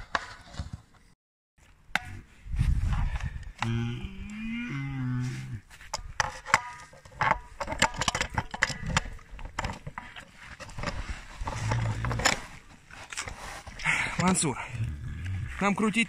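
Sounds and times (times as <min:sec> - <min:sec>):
bear low moan: 0:03.3 - 0:05.7, 0:11.5 - 0:12.4, 0:13.8 - 0:15.6.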